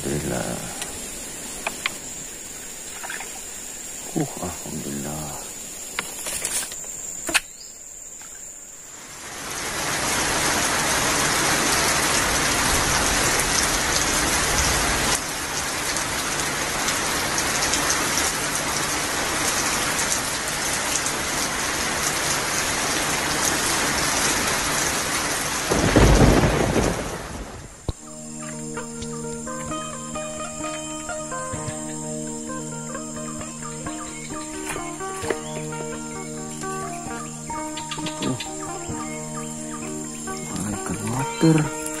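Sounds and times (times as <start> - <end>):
loud rainfall: 0.0 - 7.3, 8.6 - 42.0.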